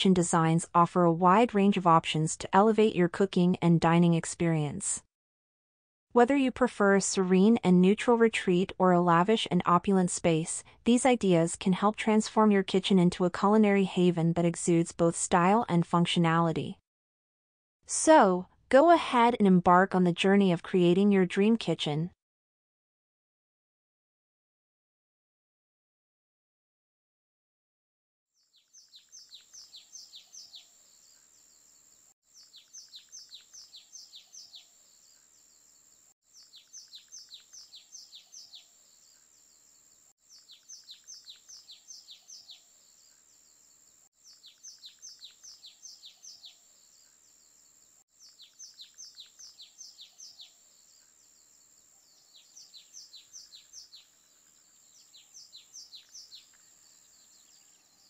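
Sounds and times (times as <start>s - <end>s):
bird chirping: 28.4s - 58.0s.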